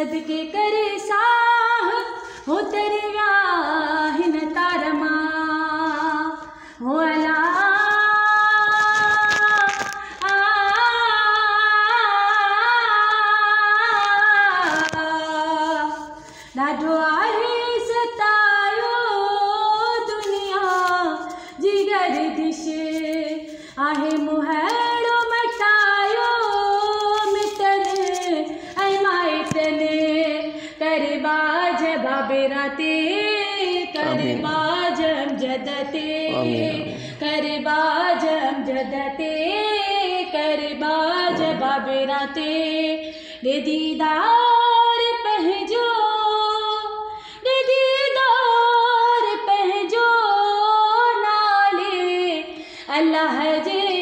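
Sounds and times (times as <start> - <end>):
woman singing unaccompanied: 0.0 - 54.0.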